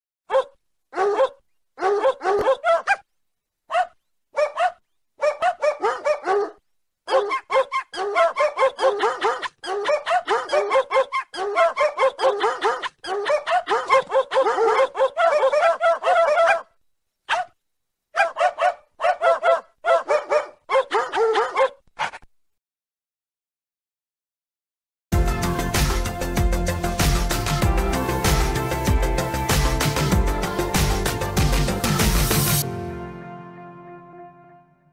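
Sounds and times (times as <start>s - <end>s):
dog barking rapidly: 0.3s - 3.1s, 3.7s - 22.2s.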